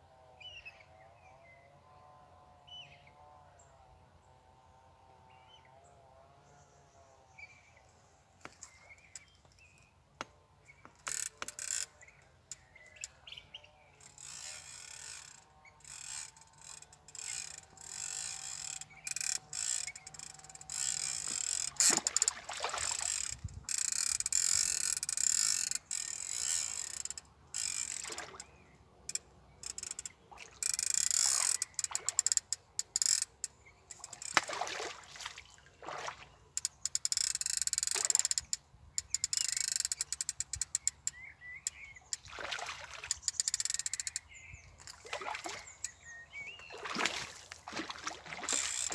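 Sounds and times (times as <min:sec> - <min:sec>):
fishing reel ratchet clicking: 0:10.8 - 0:13.2, 0:14.0 - 0:28.5, 0:29.1 - 0:34.4, 0:36.6 - 0:42.2, 0:43.0 - 0:44.9, 0:48.5 - 0:48.9
water splashing: 0:21.2 - 0:23.5, 0:28.0 - 0:28.4, 0:30.3 - 0:30.6, 0:31.3 - 0:32.3, 0:34.0 - 0:36.4, 0:42.2 - 0:43.3, 0:44.9 - 0:45.8, 0:46.7 - 0:48.9.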